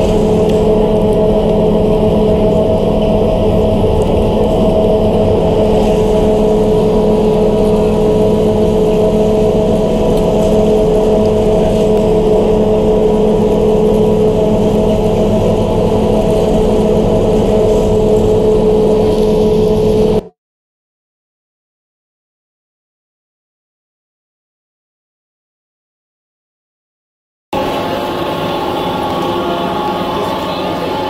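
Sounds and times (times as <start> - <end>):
motor humming and whining: 0.0 - 20.3, 27.6 - 31.0.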